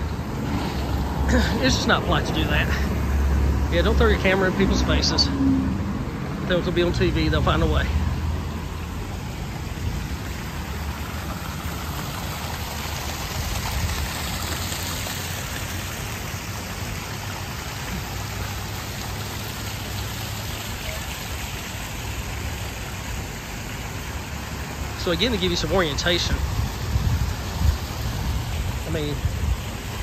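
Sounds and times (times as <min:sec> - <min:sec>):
fountain spray splashing: 0:00.0 - 0:30.0.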